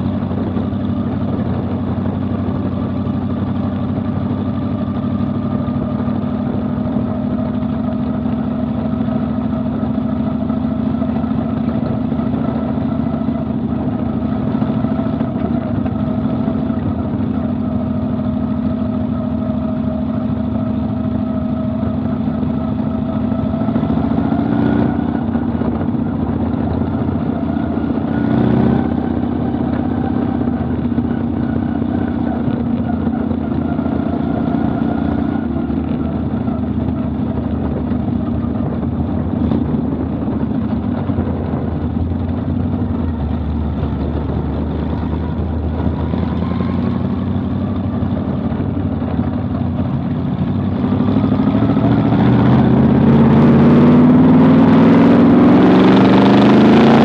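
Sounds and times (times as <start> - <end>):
race car engine running: 0.0 - 57.0.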